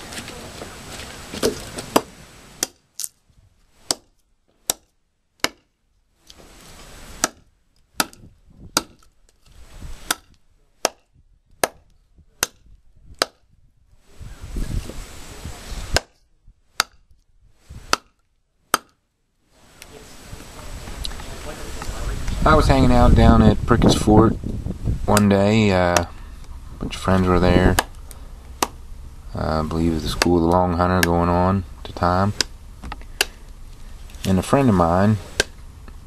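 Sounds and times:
knife chopping wood: 0:01.4 - 0:02.8, 0:03.8 - 0:05.7, 0:07.2 - 0:09.1, 0:10.0 - 0:13.5, 0:15.9 - 0:16.2, 0:16.8 - 0:17.0, 0:17.8 - 0:19.0, 0:25.1 - 0:26.2, 0:27.1 - 0:28.8, 0:30.0 - 0:31.3, 0:32.3 - 0:33.5, 0:35.2 - 0:35.7.

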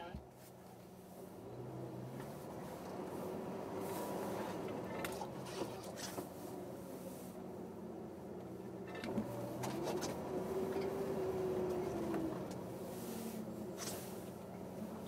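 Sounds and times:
vehicle engine running: 0:00.0 - 0:15.0
knocks and clicks of vehicle: 0:04.5 - 0:06.4, 0:08.4 - 0:11.0.

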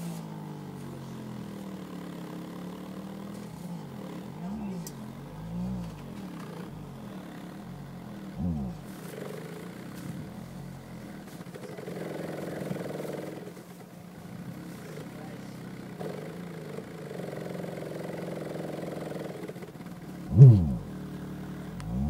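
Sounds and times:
subwoofer buzzy bass drone: 0:08.3 - 0:09.0, 0:20.3 - 0:20.9, 0:21.7 - 0:22.0.

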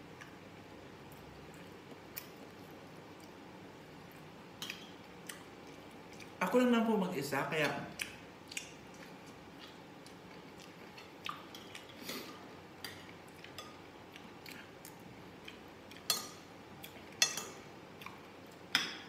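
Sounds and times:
quiet chewing: 0:01.1 - 0:03.4, 0:04.0 - 0:06.4, 0:08.0 - 0:18.7
cutlery clinking on glass bowl: 0:17.2 - 0:17.6.

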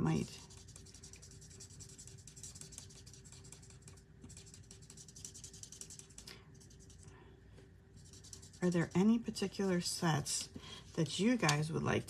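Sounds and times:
marker scratching on card: 0:00.0 - 0:07.1, 0:08.0 - 0:08.9.

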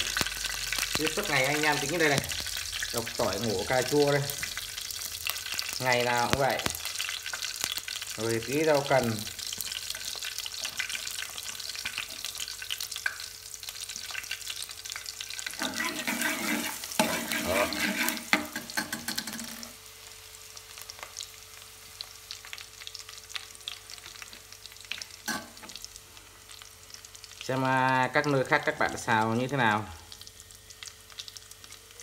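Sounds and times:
garlic sizzling in hot oil: 0:00.0 - 0:32.0
spatula scraping a pan: 0:15.5 - 0:19.8.

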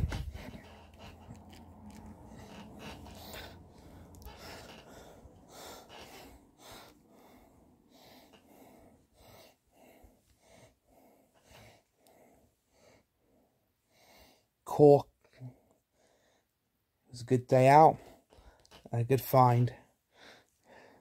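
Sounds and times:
toy figures set on blanket: 0:00.0 - 0:05.0
faint breathing: 0:00.0 - 0:14.6, 0:15.4 - 0:16.7, 0:19.8 - 0:21.0.

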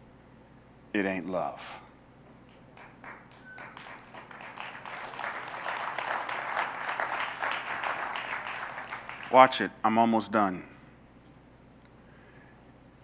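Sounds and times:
congregation applauding: 0:02.5 - 0:09.7.

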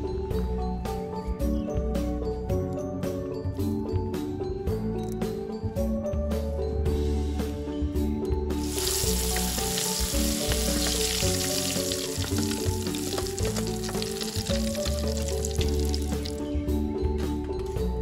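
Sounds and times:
background music: 0:00.0 - 0:18.0
food sizzling in hot oil: 0:08.6 - 0:16.4.

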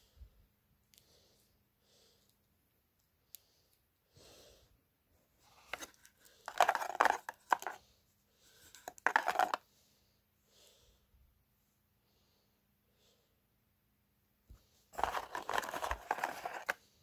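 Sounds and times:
cardboard box rustling and scraping: 0:05.7 - 0:07.8, 0:08.8 - 0:09.6, 0:15.0 - 0:16.8.

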